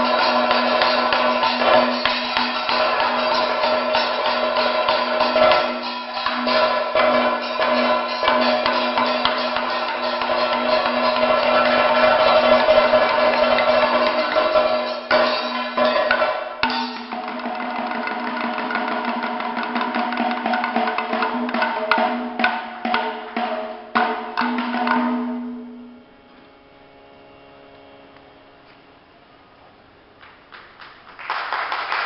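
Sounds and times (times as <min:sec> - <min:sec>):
steady ringing tone: 0:00.0 - 0:17.2
drums beating sharp strokes: 0:00.0 - 0:26.0.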